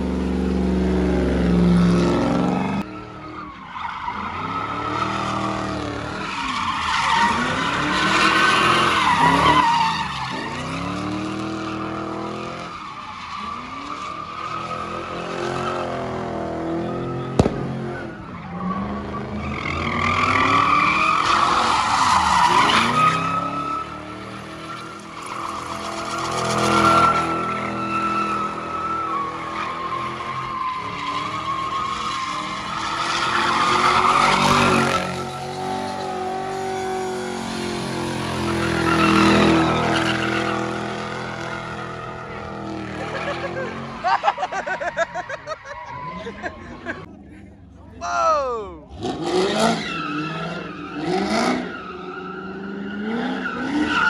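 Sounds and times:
sharp crack: 17.4 - 18.1.

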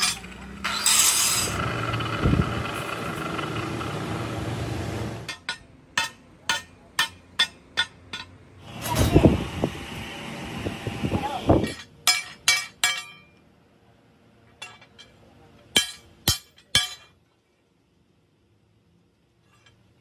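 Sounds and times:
angle grinder cutting steel: 0.0 - 5.3.

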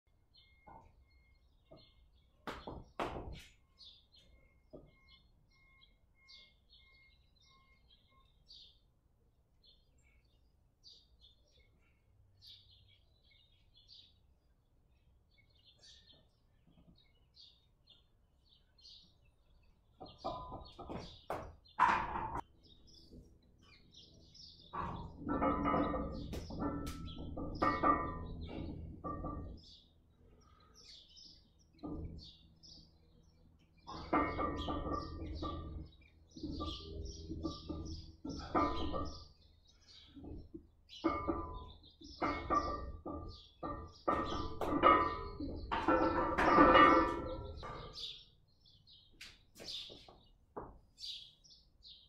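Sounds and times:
birds chirping: 0.1 - 52.0
knocks: 1.7 - 3.5, 20.0 - 22.4, 24.7 - 29.6, 40.1 - 48.1
metal clanks: 20.0 - 22.5, 23.7 - 29.9, 30.8 - 32.9, 33.8 - 48.2.

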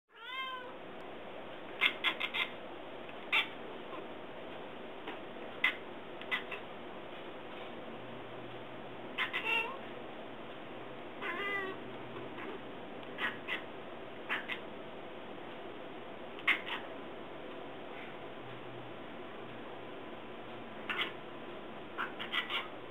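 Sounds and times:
cat chirping and chattering: 1.7 - 2.6, 3.2 - 4.1, 5.6 - 6.7, 9.1 - 9.8, 11.2 - 14.7, 16.4 - 16.9, 20.8 - 21.2, 21.9 - 22.8
cat wavering call: 9.1 - 9.8, 11.2 - 11.8, 13.2 - 14.7, 16.4 - 16.9, 20.8 - 21.2, 22.0 - 22.8.

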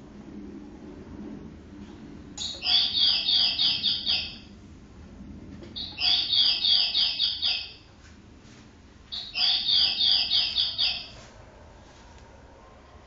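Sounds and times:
cuckoo clock chirping bird song: 2.4 - 4.4, 5.8 - 7.8, 9.1 - 11.2.

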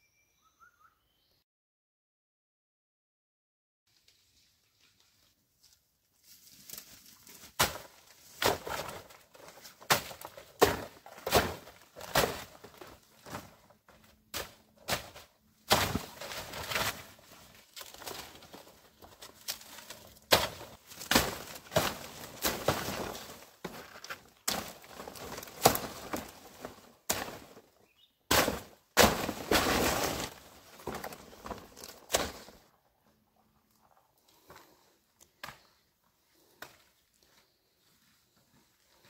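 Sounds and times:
leaves rustling: 3.9 - 13.6, 14.4 - 27.6, 28.3 - 32.6.

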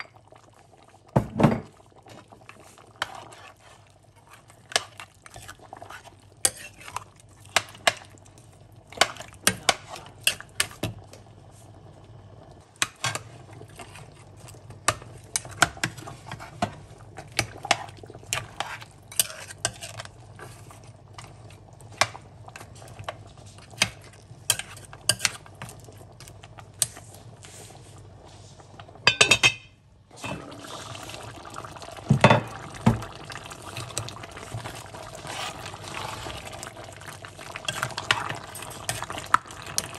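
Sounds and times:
simmering stew hissing: 1.8 - 28.9, 30.1 - 39.9
metal spoon scraping a pot: 18.3 - 20.1.

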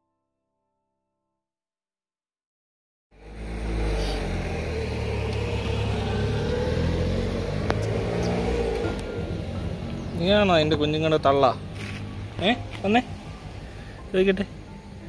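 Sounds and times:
low engine rumble: 3.2 - 15.0.

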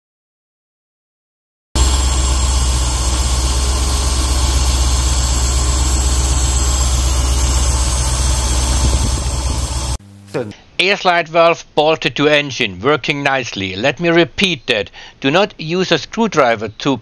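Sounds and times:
car engine idling: 1.8 - 10.0.

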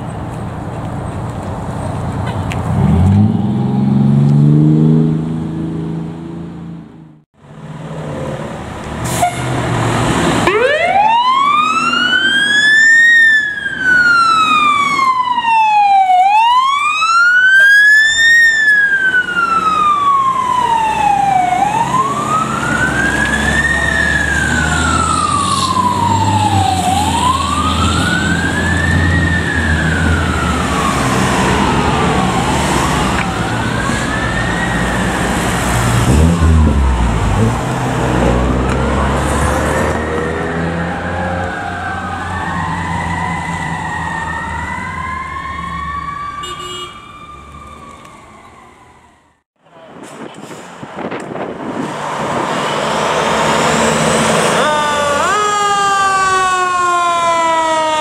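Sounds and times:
fire engine siren wailing: 9.1 - 49.4, 52.2 - 58.0
truck engine rumbling: 47.5 - 57.3.

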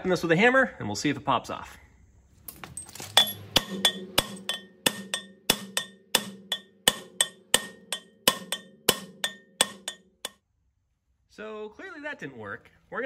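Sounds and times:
metallic ringing: 2.6 - 10.4
hammer striking metal rotor: 3.1 - 10.4.

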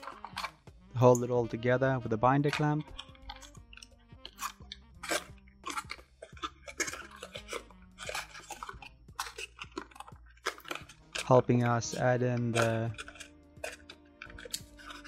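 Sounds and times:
paper crinkling and crackling: 0.0 - 0.6, 4.3 - 15.0.

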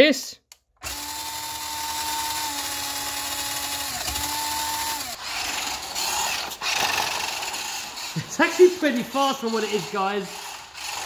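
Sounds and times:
electric motor whining: 0.8 - 8.3
toy truck drivetrain and tyres: 0.8 - 11.0.

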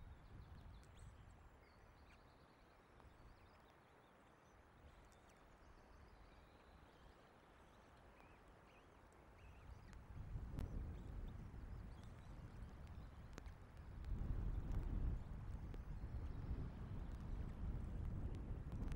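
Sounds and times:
wind buffeting microphone: 10.0 - 18.9.

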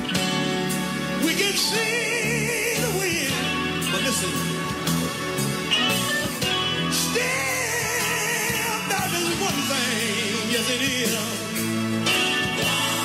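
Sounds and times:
band accompaniment: 0.0 - 13.0
person singing with vibrato: 1.2 - 4.6, 5.8 - 11.6, 12.3 - 13.0.

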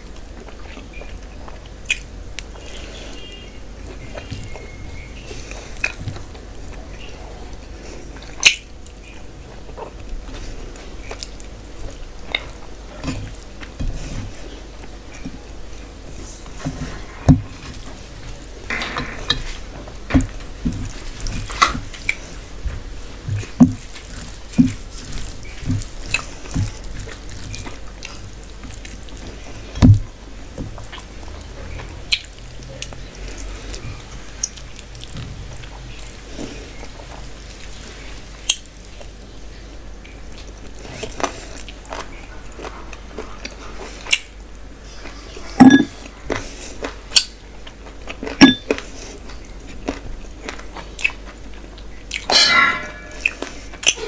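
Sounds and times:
person chewing food: 0.0 - 54.0
lip smacks: 43.4 - 44.3.

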